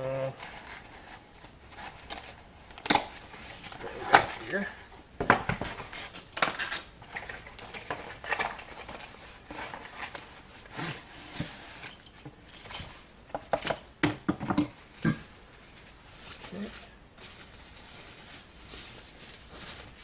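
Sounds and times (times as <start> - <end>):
cardboard and wrap rustling: 0.1 - 12.2, 14.7 - 20.0
metal clinks and knocks: 11.8 - 14.6.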